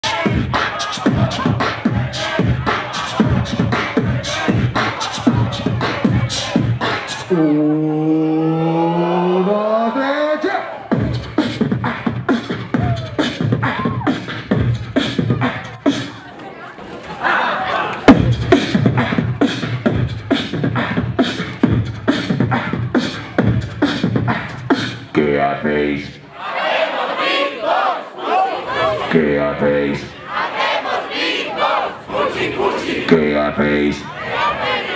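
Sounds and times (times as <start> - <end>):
beatboxing through a pa: 0.0 - 10.2, 10.8 - 16.2, 18.1 - 25.4
low held vocal note: 7.3 - 9.8.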